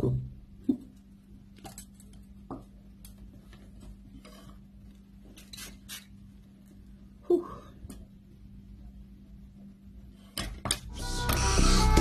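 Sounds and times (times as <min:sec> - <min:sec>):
spray bottle hissing: 0:05.4 - 0:06.1.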